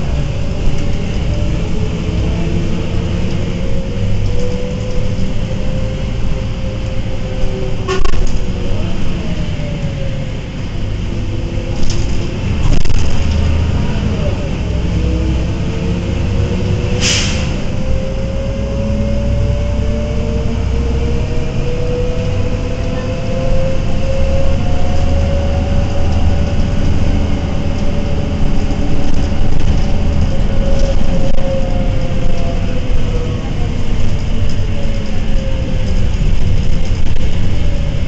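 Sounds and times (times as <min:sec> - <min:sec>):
diesel bus engine rumbling: 0:00.0 - 0:38.0
short air hiss: 0:17.0 - 0:17.6
gearbox whine rising in pitch: 0:17.6 - 0:38.0.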